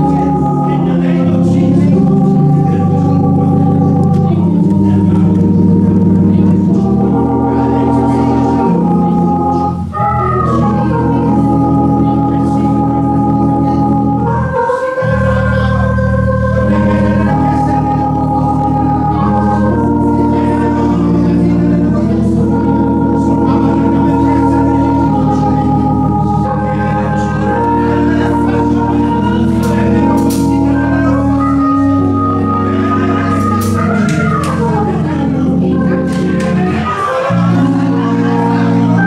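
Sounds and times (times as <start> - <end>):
organ playing held chords: 0.0 - 39.0.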